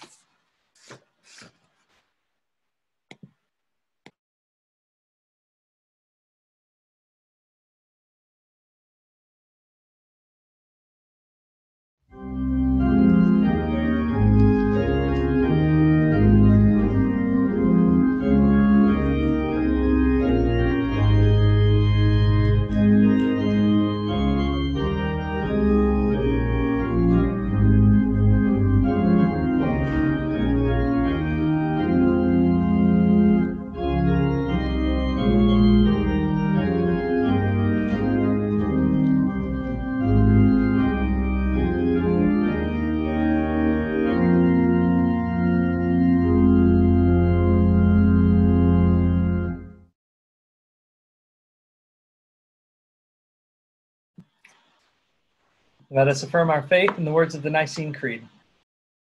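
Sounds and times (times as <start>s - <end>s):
organ playing sustained chords: 12.1s - 49.9s.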